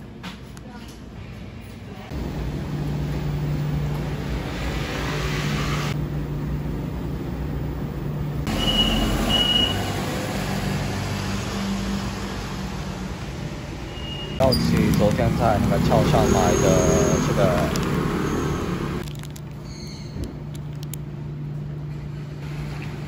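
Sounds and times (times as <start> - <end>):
washing machine humming: 1.8 - 19.0, 20.4 - 23.0
minibus passing: 2.0 - 19.0
traffic on a wet road: 8.5 - 19.0.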